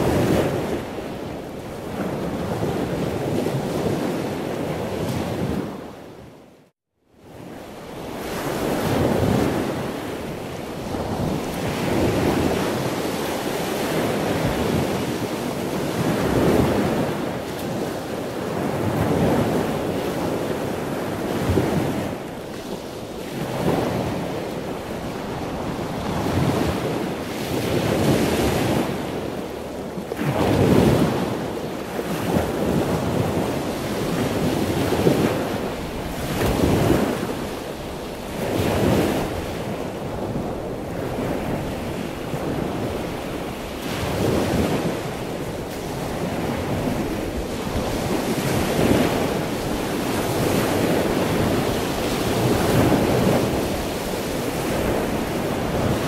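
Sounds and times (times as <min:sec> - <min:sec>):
water rushing in surges: 0:31.9 - 0:56.0.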